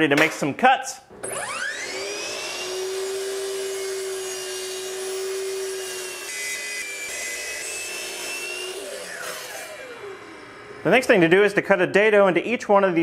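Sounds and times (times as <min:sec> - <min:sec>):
miter saw whining: 0:01.1 - 0:11.4
saw blade cutting wood: 0:01.2 - 0:11.3.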